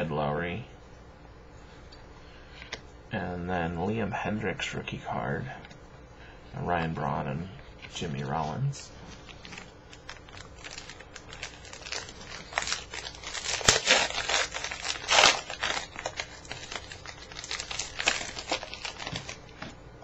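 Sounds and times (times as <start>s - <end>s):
foil wrapper tearing and crinkling: 9.3s - 19.6s.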